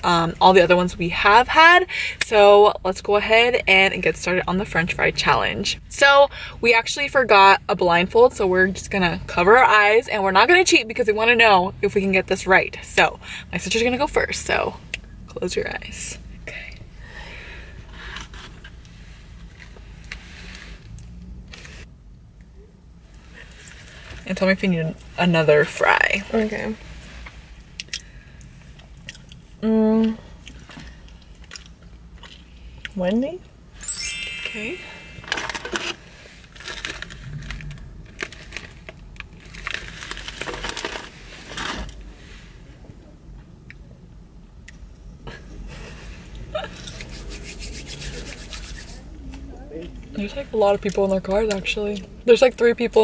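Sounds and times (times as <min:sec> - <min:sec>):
low hum inside car: 0:00.0 - 0:53.0
paper bags crinkling: 0:36.5 - 0:41.7.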